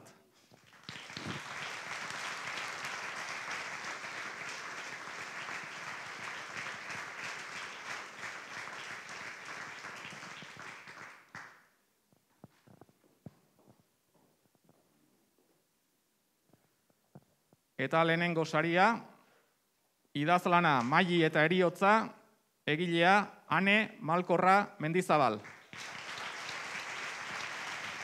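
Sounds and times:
audience applauding: 0:00.5 - 0:11.6, 0:25.4 - 0:28.0.

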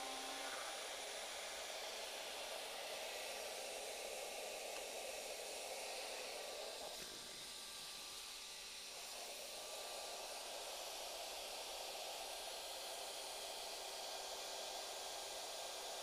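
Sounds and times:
dust extractor sucking air: 0:00.0 - 0:04.7.

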